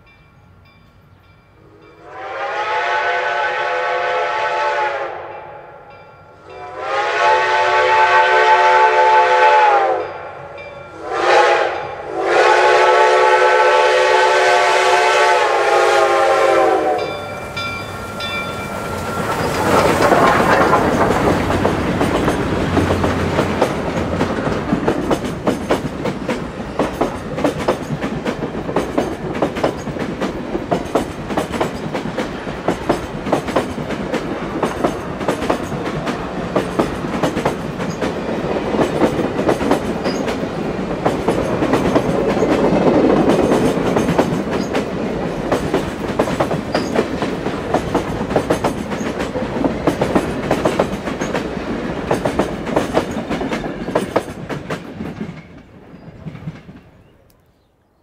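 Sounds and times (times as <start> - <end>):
steam locomotive passing: 0.0 - 57.3
train wheels clickety-clack: 17.7 - 57.1.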